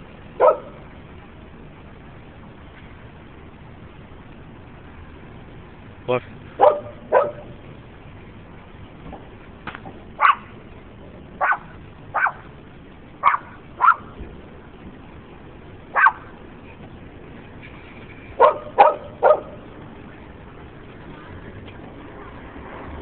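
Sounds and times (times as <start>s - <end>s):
dogs barking: 0.4s - 0.8s, 6.6s - 7.6s, 10.2s - 10.6s, 11.4s - 12.5s, 13.2s - 14.2s, 15.9s - 16.3s, 18.4s - 19.7s.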